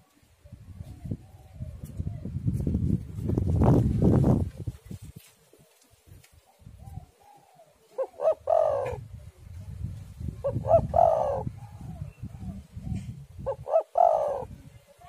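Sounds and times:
dove cooing: 6.5 - 9.1, 10.4 - 14.7.

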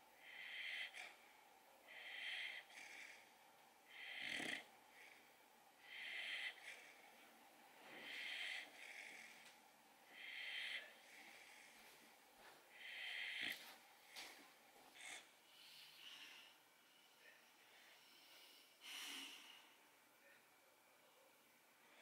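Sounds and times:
puppy snoring: 0.2 - 1.2, 1.8 - 11.8, 12.7 - 16.4.

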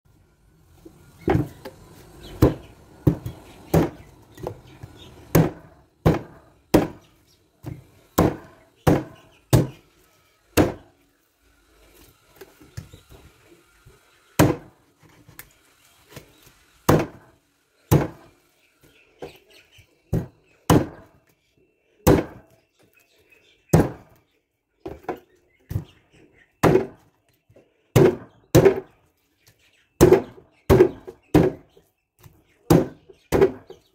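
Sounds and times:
cleaver chopping meat and bone: 1.2 - 9.8, 10.6 - 10.9, 14.4 - 14.8, 16.1 - 17.3, 17.9 - 18.3, 20.1 - 21.2, 22.0 - 22.6, 23.7 - 24.2, 26.6 - 27.0, 27.9 - 29.0, 30.0 - 33.9.

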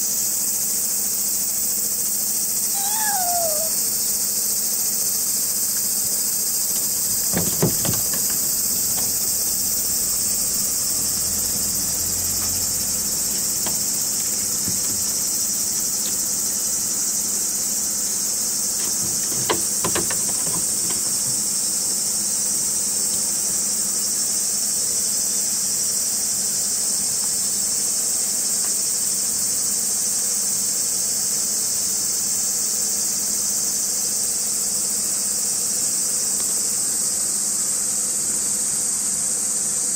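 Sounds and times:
insect chorus: 0.0 - 39.9
knocks on plastic crate: 6.7 - 10.3, 18.8 - 21.5.

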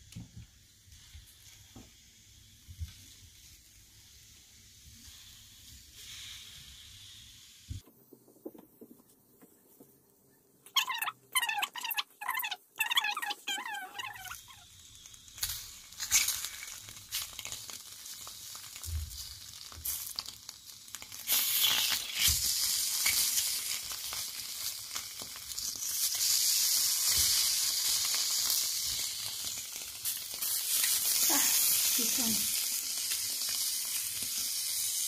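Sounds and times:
sausages sizzling in a frying pan: 0.0 - 7.8, 10.8 - 35.0
skewers clicking against a pan: 14.9 - 35.0.

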